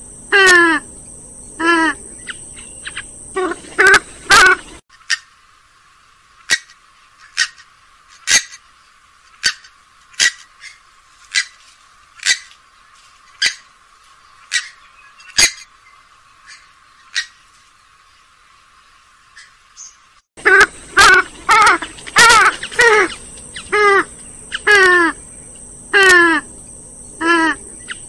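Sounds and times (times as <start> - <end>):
bird giving sharp call notes: 20.4 - 25.2.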